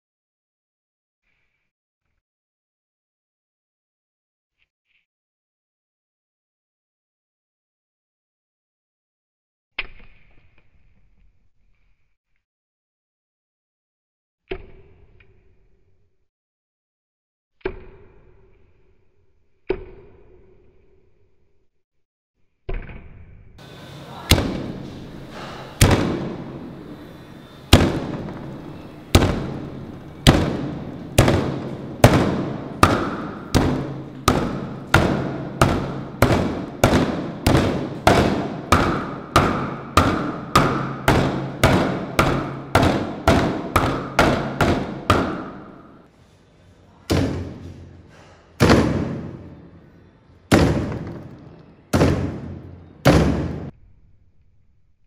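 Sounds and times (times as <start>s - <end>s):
wooden club thudding on chopping block: 30.2s - 45.7s.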